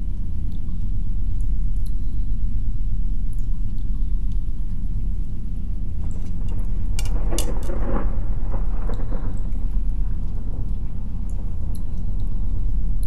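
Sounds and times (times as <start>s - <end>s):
deep thunder rumble: 4.9s - 13.0s
thunderclap crackling: 6.0s - 13.0s.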